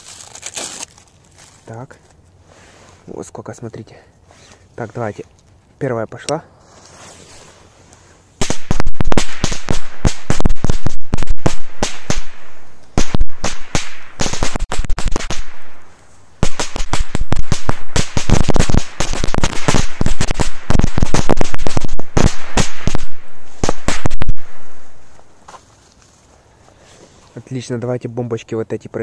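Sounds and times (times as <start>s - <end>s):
firecrackers bangs: 8.4s - 25.0s.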